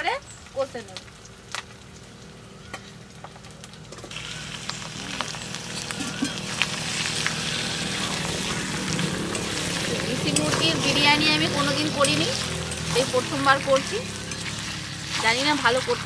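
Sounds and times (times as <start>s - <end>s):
chicken sizzling in hot oil: 0.0s - 16.0s
metal spatula scraping and stirring: 5.4s - 16.0s.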